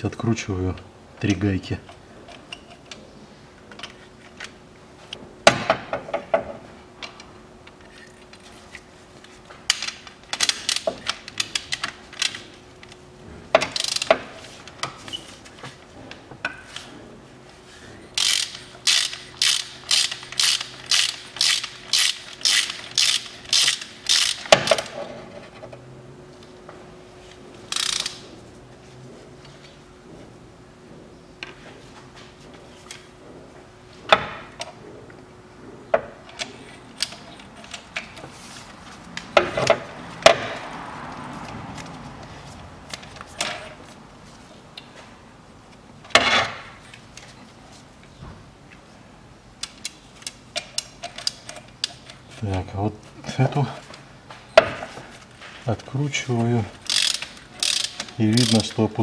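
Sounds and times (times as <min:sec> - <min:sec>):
ratchet wrench clicking: 0:13.7 - 0:14.1, 0:18.2 - 0:24.9, 0:27.7 - 0:28.2, 0:56.8 - 0:58.8.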